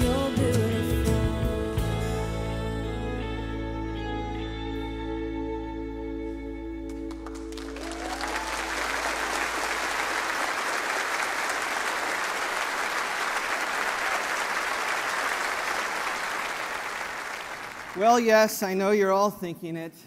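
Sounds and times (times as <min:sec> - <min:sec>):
congregation applauding: 0:06.9 - 0:19.0.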